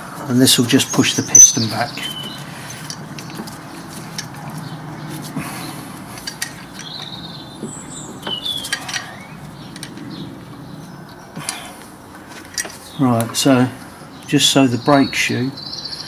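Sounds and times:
metal clamp clicks and scrapes: 6.0 - 10.2.

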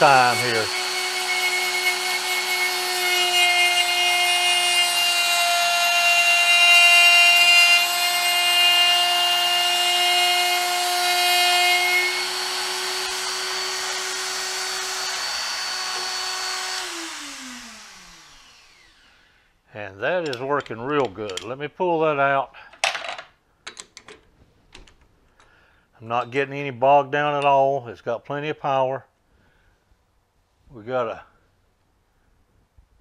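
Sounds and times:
grinder spinning down: 0.0 - 3.8, 11.4 - 19.1
die grinder whining: 0.0 - 19.1.

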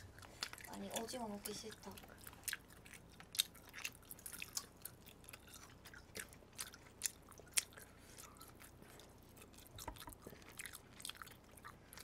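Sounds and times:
chewing shrimp with crackly clicks: 0.0 - 12.0.

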